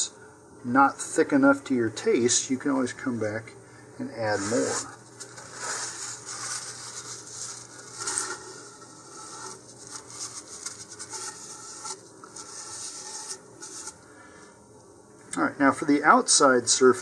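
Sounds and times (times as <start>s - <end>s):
gloved hands rubbing plastic: 4.2s - 14.0s.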